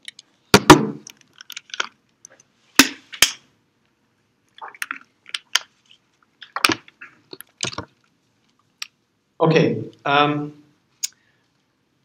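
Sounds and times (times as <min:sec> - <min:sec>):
plastic bottle crinkling: 0:00.6 - 0:02.4, 0:04.6 - 0:08.6.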